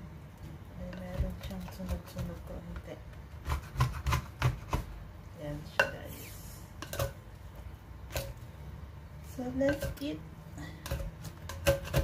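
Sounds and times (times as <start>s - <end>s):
spoon scraping clay pot: 9.6s - 12.0s.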